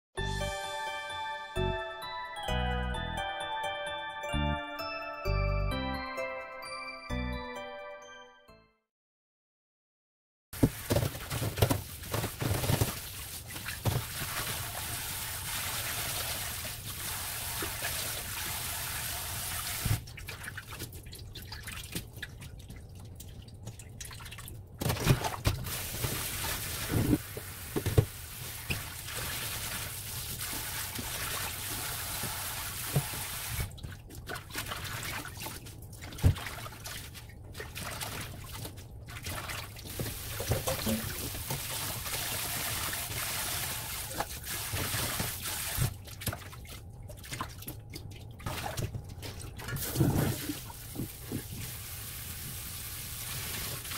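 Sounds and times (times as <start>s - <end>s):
tap water running into sink: 10.6s - 20.1s, 25.4s - 34.0s, 39.6s - 46.4s
splashes and knocks from bowl: 33.8s - 41.8s.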